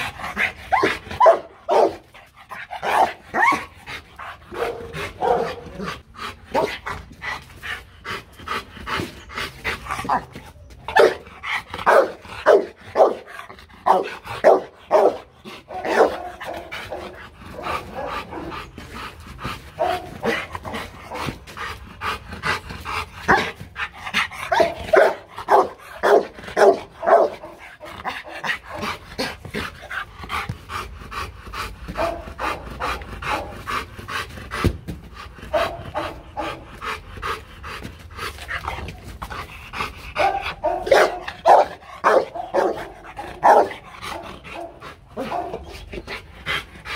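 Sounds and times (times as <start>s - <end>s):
dog panting: 0.0s - 46.9s
dog barking: 0.8s - 2.0s, 4.5s - 5.7s, 10.9s - 11.2s, 11.8s - 13.2s, 13.9s - 17.2s, 19.8s - 20.4s, 24.5s - 27.6s, 32.0s - 32.2s, 40.2s - 45.6s.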